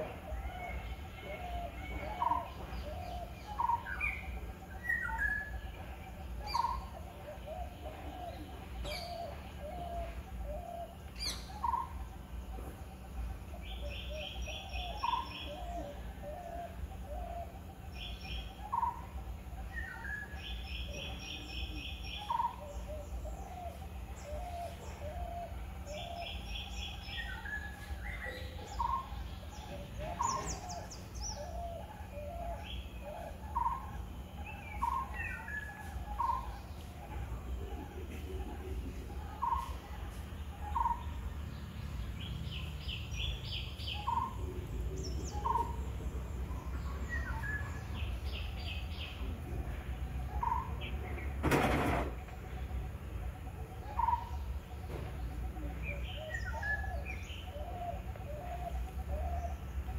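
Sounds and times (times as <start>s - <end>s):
low steady rumble: 0.0s - 59.9s.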